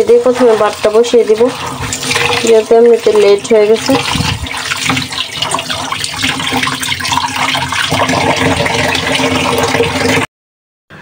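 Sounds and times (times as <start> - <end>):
tap water splashing into bowl: 1.6 - 2.7, 3.8 - 10.2.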